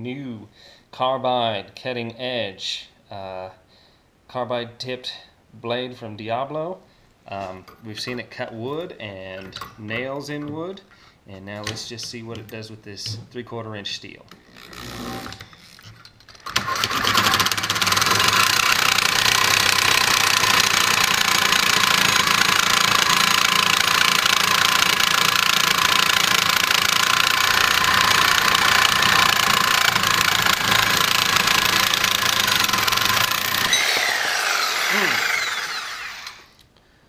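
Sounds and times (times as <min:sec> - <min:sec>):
reciprocating saw cutting steel: 0:16.8 - 0:36.6.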